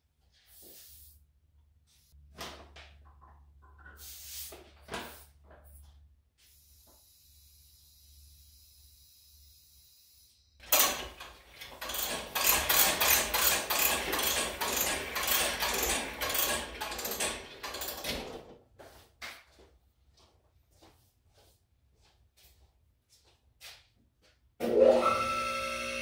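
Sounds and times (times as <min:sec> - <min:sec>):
air hose reel ratcheting: 0:10.6 - 0:18.4
soft footsteps: 0:18.6 - 0:24.5.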